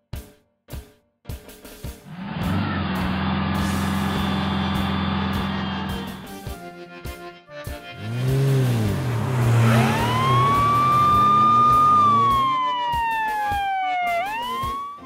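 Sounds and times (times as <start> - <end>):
emergency siren wailing: 2.1 - 6.3, 8.0 - 15.0
low engine rumble: 2.1 - 6.4, 7.9 - 12.7.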